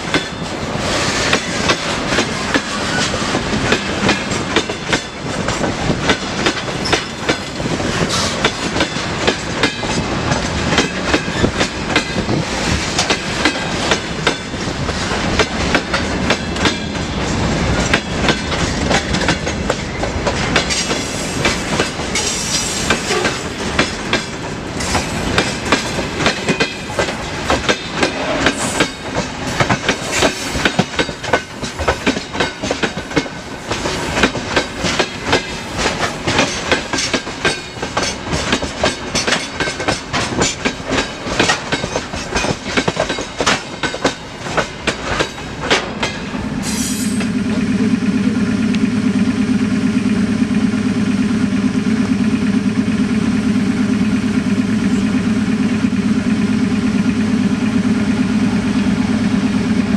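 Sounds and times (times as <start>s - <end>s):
train wheels clicking over rail joints: 0.0s - 59.8s.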